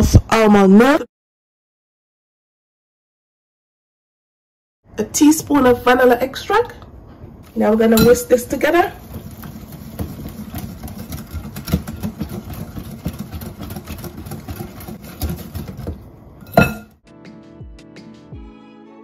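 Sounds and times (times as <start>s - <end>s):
whisk clinking against glass bowl: 7.9s - 8.4s, 9.0s - 16.9s.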